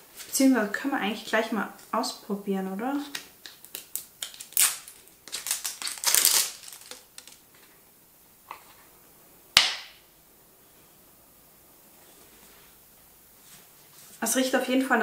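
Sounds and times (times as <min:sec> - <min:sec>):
plastic wrapping crinkling and tearing: 0:03.1 - 0:07.6.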